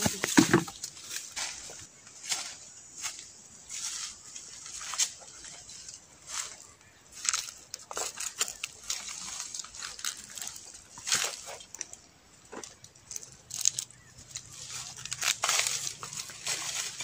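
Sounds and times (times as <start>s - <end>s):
dry leaves crackling and rustling: 0.0s - 17.0s
twigs snapping: 7.2s - 17.0s.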